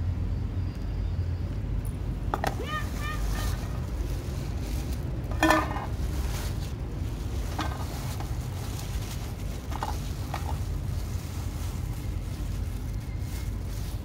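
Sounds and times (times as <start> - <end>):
steady low rumble: 0.0 - 14.0
plastic bag rustling: 2.4 - 14.0
cats meowing: 2.5 - 3.8.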